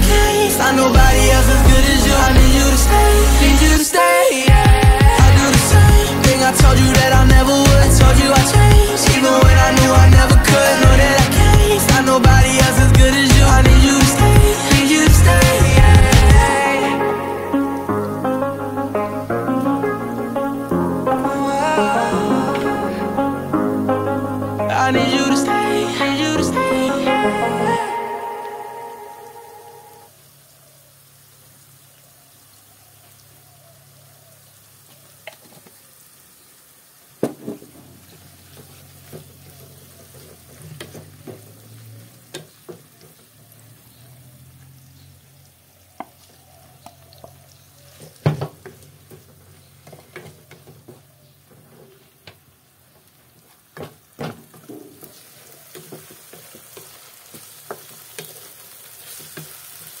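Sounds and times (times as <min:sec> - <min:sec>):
pork and onions sizzling in a pan: 0:30.1 - 0:50.6, 0:53.2 - 1:00.0.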